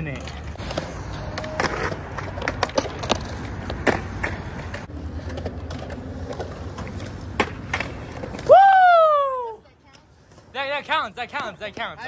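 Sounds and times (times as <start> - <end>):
skateboard wheels rumbling: 0.0 - 12.0
skateboard clacks: 0.2 - 8.5.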